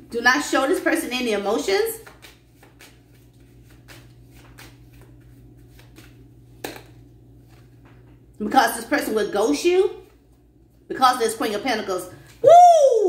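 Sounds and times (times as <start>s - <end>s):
cards being shuffled: 1.9s - 8.1s.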